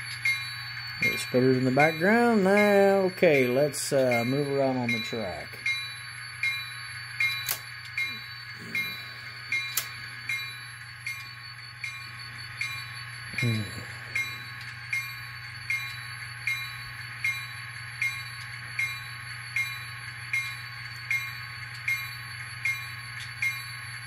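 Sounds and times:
diesel locomotive idling: 0.0 - 19.0
locomotive bell ringing: 0.0 - 24.0.

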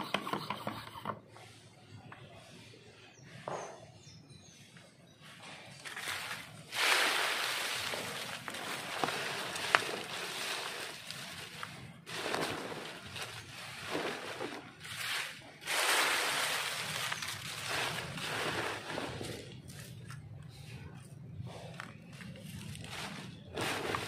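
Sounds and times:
plastic bag fabric rustling: 5.8 - 20.0, 22.2 - 24.0
dry leaves rustling: 5.8 - 20.2, 22.2 - 24.0.

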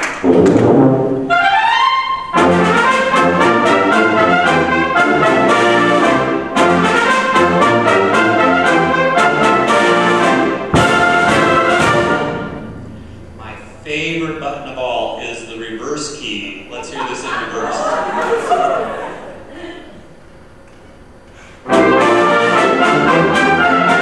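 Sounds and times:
wind band playing: 0.0 - 15.6, 21.6 - 24.0.

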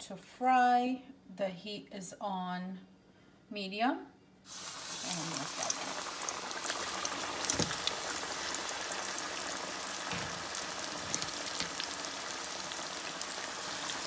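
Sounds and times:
chicken sizzling in hot oil: 4.5 - 14.0.

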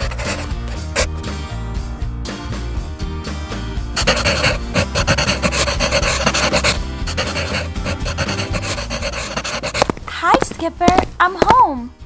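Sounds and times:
pencil scribbling on paper: 0.0 - 1.1, 4.0 - 10.0
background music: 0.0 - 12.0.

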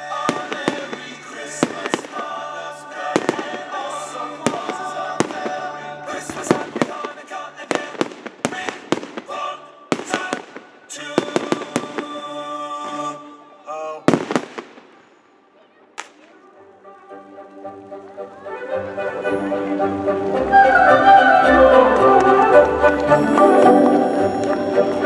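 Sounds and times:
firework shells bursting: 0.2 - 2.4, 3.1 - 12.2, 14.1 - 15.0
music with held notes: 16.4 - 25.0.

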